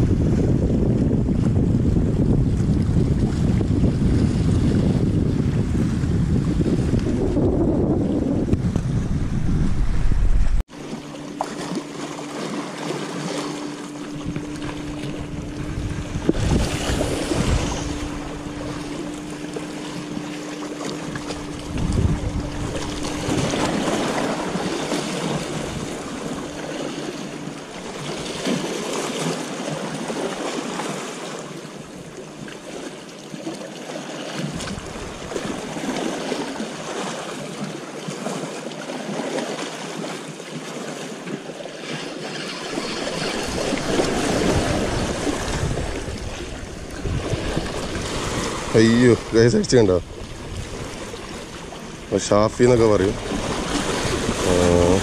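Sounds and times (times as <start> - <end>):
wind on microphone: 0.0 - 10.7, 13.9 - 30.0, 34.4 - 36.6, 42.3 - 55.0
low hum: 0.0 - 29.0
waves washing against rocks: 11.4 - 31.6, 32.6 - 55.0.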